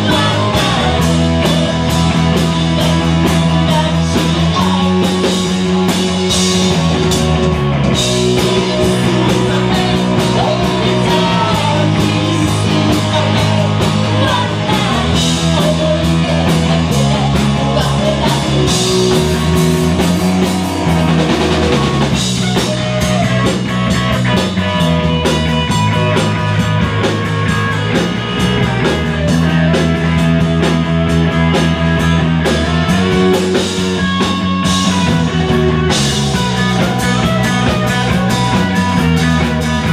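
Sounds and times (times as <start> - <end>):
person singing: 0.0 - 6.2, 8.1 - 19.6
drum kit: 0.0 - 39.9
electric guitars: 0.0 - 39.9.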